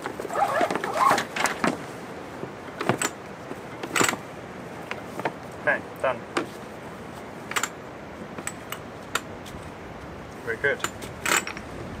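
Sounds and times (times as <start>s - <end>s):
rope squeaking on winch drum: 0.1s - 1.7s.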